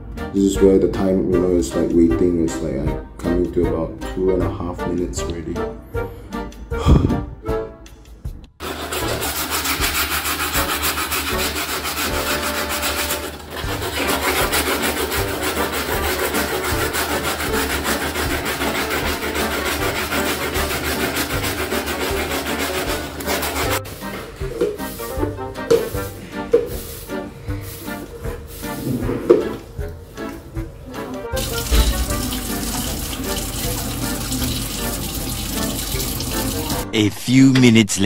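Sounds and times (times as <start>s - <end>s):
scrubbing a shoe: 8.6s - 23.9s, 31.4s - 36.8s.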